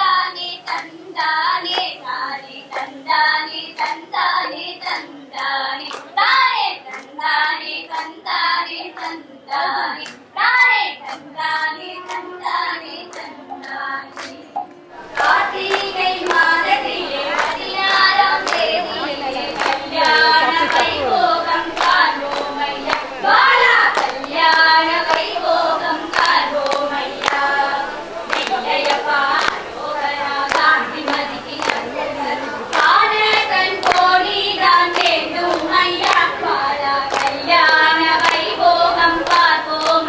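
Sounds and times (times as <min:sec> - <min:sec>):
women singing together: 0:00.0 - 0:40.0.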